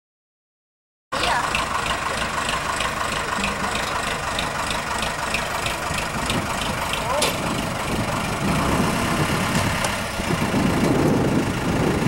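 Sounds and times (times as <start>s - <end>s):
people talking: 1.2s - 1.7s, 3.2s - 4.2s, 6.8s - 8.4s
tractor engine running: 1.2s - 12.0s.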